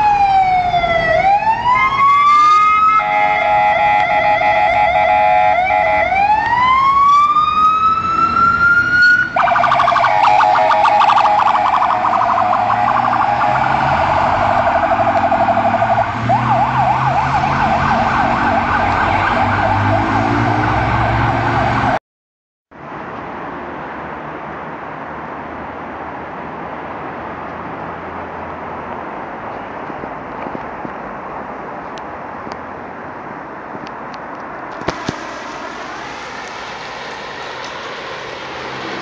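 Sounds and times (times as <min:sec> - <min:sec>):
fire engine siren: 0:00.0 - 0:22.0, 0:34.8 - 0:39.0
low engine drone: 0:34.8 - 0:39.0.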